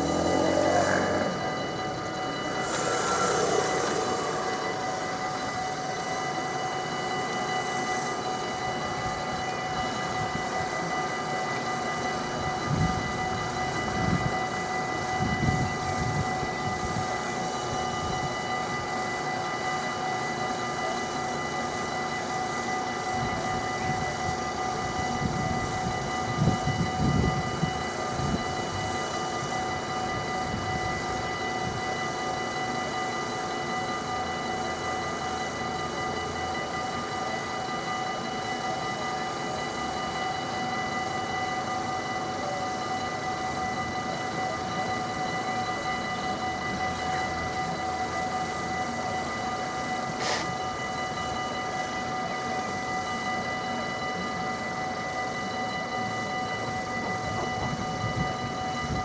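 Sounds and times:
road traffic rumble: 0.0s - 5.3s
level crossing warning bells: 0.0s - 59.0s.

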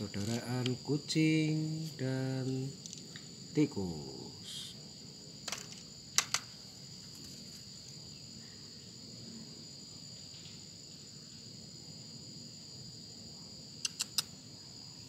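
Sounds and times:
night insects chirring: 0.0s - 15.0s
sharp clicks: 13.8s - 14.3s.

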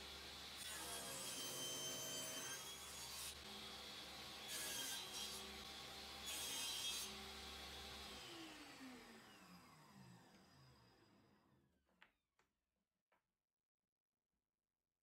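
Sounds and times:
table saw running: 0.0s - 11.2s
saw motor winding down: 8.0s - 11.3s.

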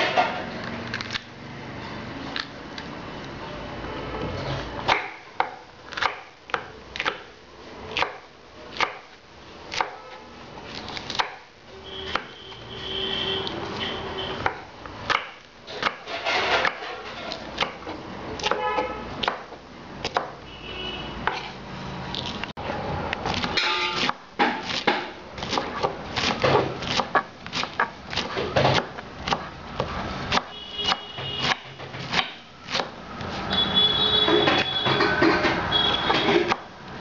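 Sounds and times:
knife chopping on wooden board: 4.9s - 7.3s, 7.9s - 10.2s, 11.0s - 11.5s, 14.4s - 20.4s, 21.2s - 21.6s, 23.2s - 33.5s
knife shredding cabbage: 23.2s - 33.5s.

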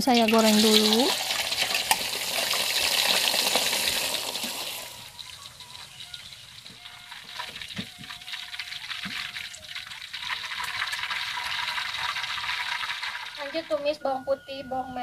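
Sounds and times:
chicken sizzling in a pan: 0.0s - 5.2s, 9.2s - 13.7s
crackles of frying: 0.0s - 14.0s.

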